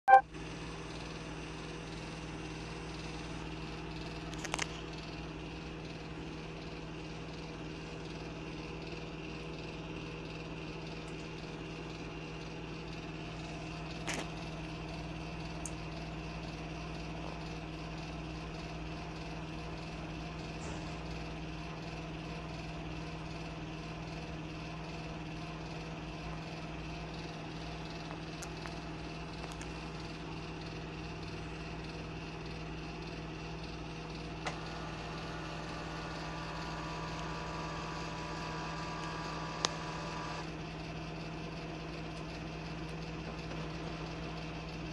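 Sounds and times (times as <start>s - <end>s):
printer humming: 28.8s - 44.9s.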